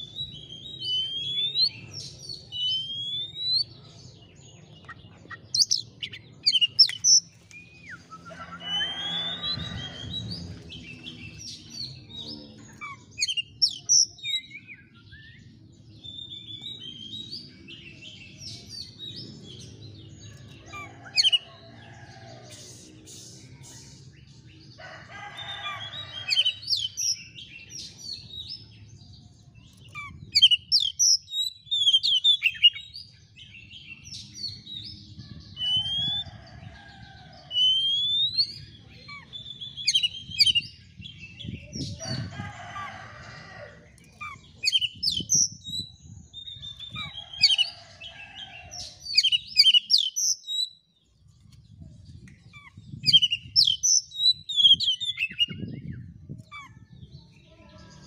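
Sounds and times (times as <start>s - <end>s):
bird singing whistles and chatter: 0.0s - 3.7s, 22.5s - 24.3s, 34.4s - 36.3s, 37.5s - 42.3s.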